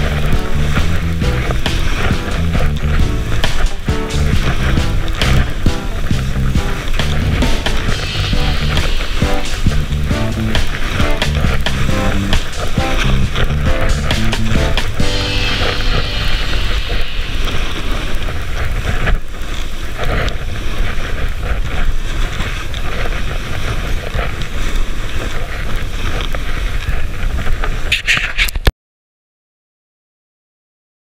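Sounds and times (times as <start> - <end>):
wind buffeting microphone: 0.0 - 28.0
skis hissing through snow: 0.0 - 28.6.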